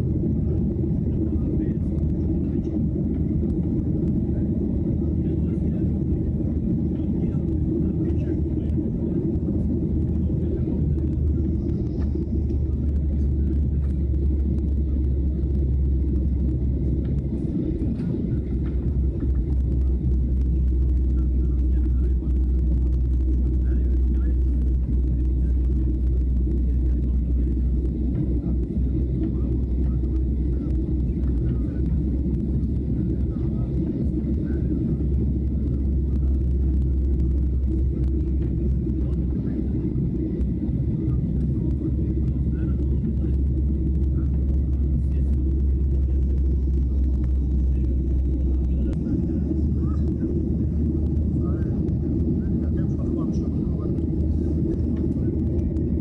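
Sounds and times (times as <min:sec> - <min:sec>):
jet engines rumbling: 0:00.0 - 0:56.0.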